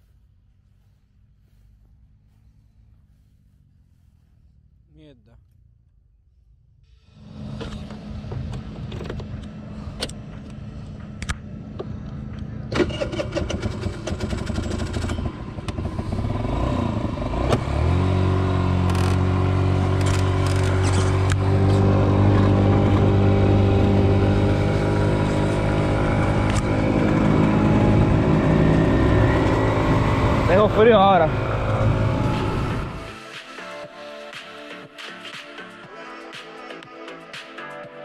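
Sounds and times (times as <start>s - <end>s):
scooter engine: 6.9s - 33.3s.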